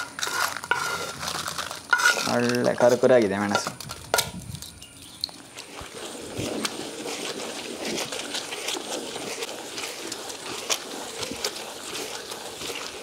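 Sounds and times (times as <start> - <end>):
stone grinder scraping and crunching: 0.0 - 13.0.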